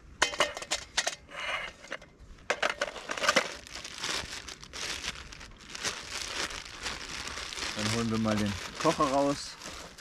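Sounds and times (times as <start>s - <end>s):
pouch rustling and crinkling: 2.9s - 10.0s.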